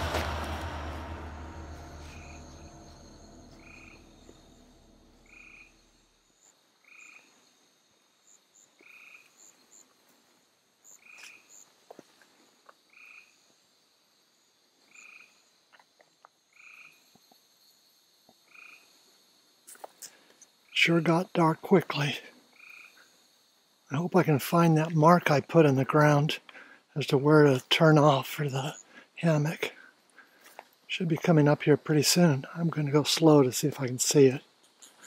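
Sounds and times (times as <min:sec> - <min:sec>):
background music: 0:00.0 - 0:05.3
insect drone: 0:00.0 - 0:35.0
frog croaking: 0:03.6 - 0:04.3, 0:18.5 - 0:18.9, 0:22.6 - 0:23.1.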